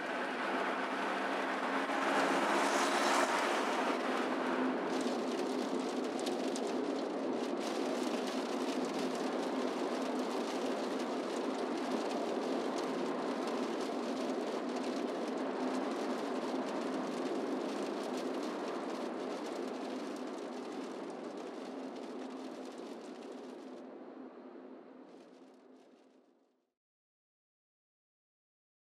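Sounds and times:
tyre and wind road noise: 0:00.0 - 0:25.4.

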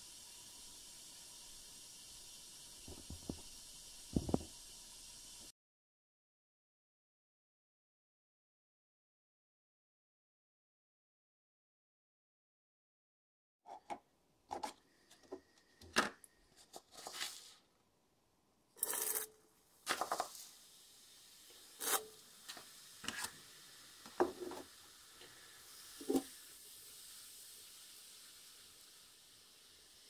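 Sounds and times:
short hiss: 0:00.0 - 0:05.5, 0:19.9 - 0:30.0
solution fizzing: 0:00.0 - 0:05.5, 0:18.8 - 0:30.0.

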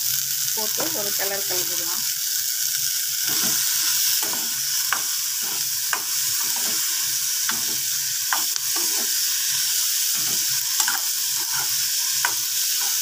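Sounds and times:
vegetables sizzling in hot oil: 0:00.0 - 0:13.0
metal spoon scraping a pan: 0:03.2 - 0:13.0.

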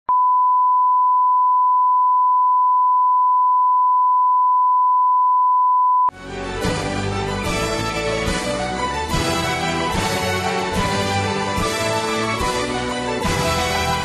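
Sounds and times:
music: 0:06.1 - 0:14.0.

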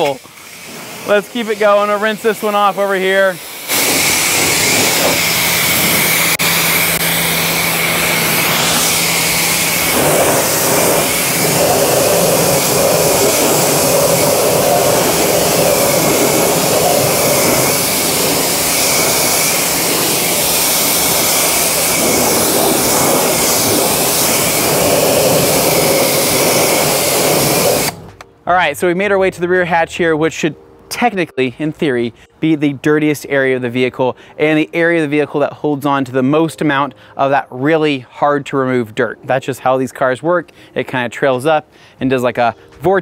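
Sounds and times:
pressure washer spraying: 0:00.0 - 0:28.1
steady whine: 0:00.0 - 0:31.4
low hum: 0:03.8 - 0:28.5.

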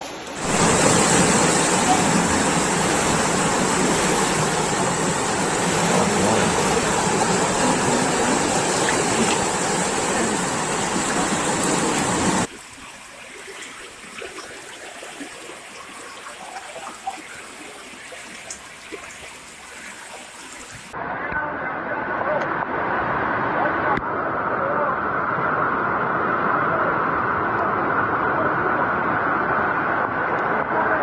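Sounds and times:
rushing floodwater: 0:00.0 - 0:21.0
faint splashes: 0:00.2 - 0:21.0.

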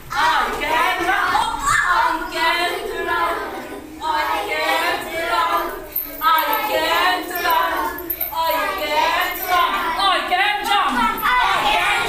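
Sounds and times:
children chanting together: 0:00.0 - 0:12.0.

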